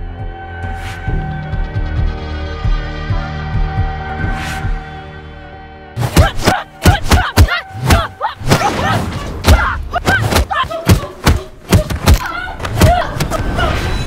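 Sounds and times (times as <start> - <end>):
fighters grunting and crying out: 6.0 - 14.0.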